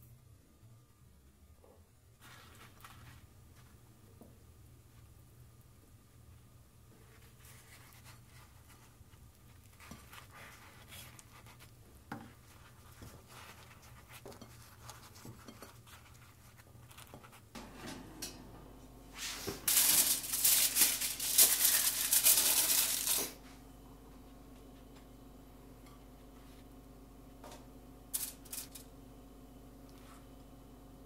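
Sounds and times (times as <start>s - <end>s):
aluminium foil tearing and crinkling: 19.7s - 23.4s, 28.1s - 28.9s.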